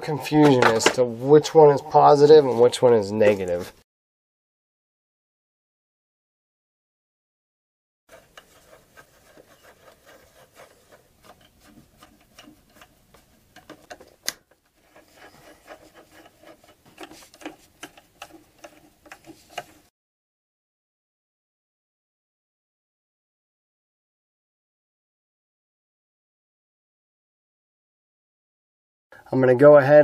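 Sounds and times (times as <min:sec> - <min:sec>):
screwdriver scraping on screw: 0:08.1 - 0:19.9.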